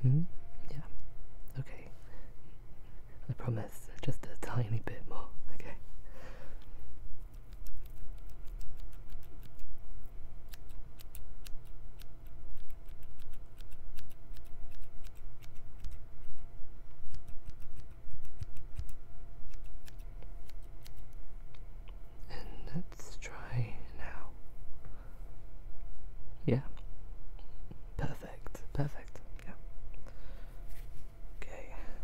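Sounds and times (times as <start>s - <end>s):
scissors snipping: 10.5s - 16.4s, 17.0s - 21.6s.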